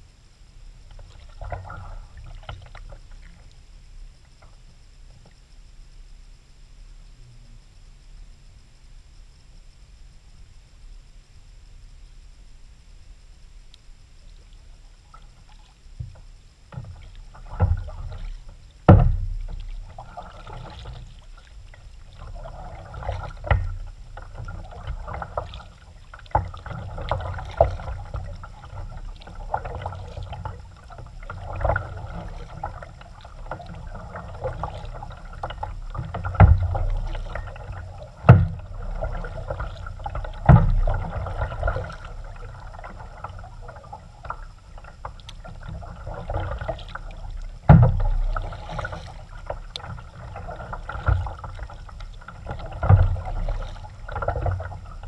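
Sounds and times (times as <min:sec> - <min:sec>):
paddle splashing water: 0:00.8 - 0:03.7, 0:14.3 - 0:55.0
sharp knocks: 0:18.9 - 0:19.4.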